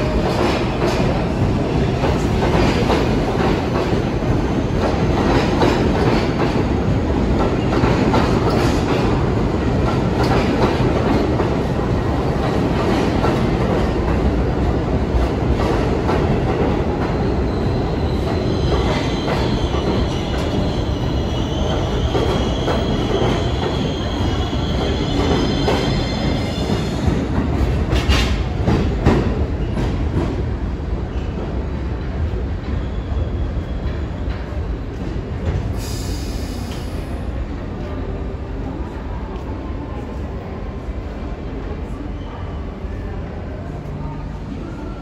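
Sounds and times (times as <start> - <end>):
subway train wheels rumbling and clacking: 0.0 - 45.0.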